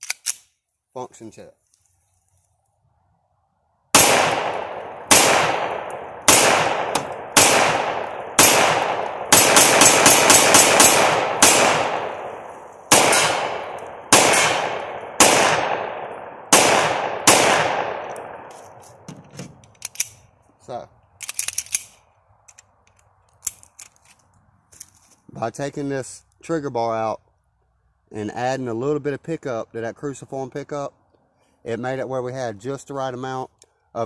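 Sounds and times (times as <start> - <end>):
pistol gunshots: 3.9 - 18.5.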